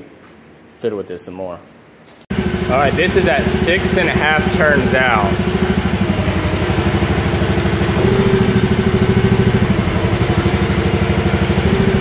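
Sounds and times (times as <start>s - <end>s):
small excavator engine running: 2.3s - 12.0s.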